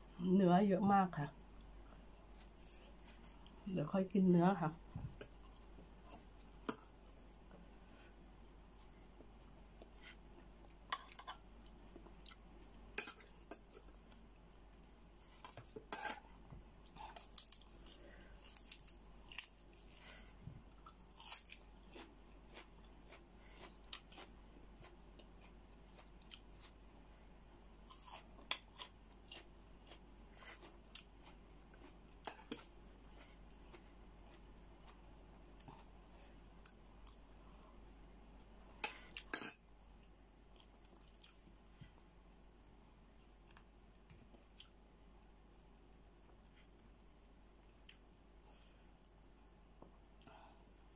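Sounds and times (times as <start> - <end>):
quiet chewing: 1.6 - 3.6, 8.8 - 15.8, 16.6 - 26.8, 27.8 - 37.8, 40.0 - 42.1, 43.2 - 45.3, 47.6 - 49.2.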